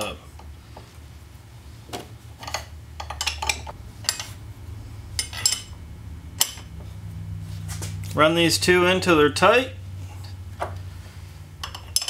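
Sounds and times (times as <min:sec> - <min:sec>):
steady low hum: 0:00.0 - 0:12.0
wrenches clinking on metal: 0:11.6 - 0:12.0.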